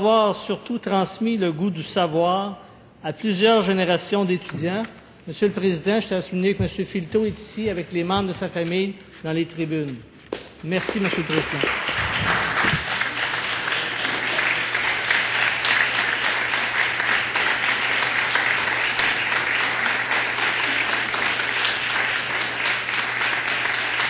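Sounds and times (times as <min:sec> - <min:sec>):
crowd applauding: 0:10.6 - 0:24.0.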